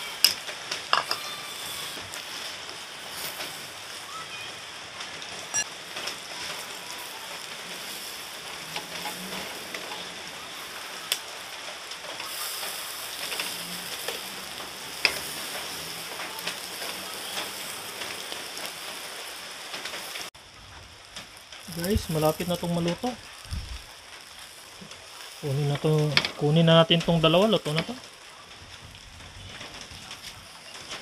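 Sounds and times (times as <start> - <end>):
meat sizzling on a grill: 0.0 - 31.0.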